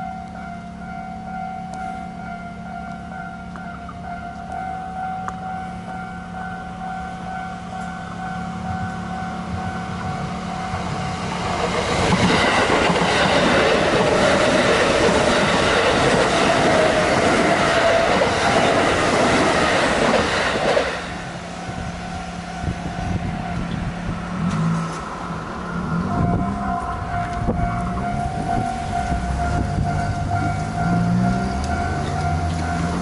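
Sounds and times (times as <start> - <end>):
level crossing warning bell: 0.0 - 11.5, 21.6 - 24.2, 25.9 - 33.0
train wheels on rails: 0.0 - 33.0.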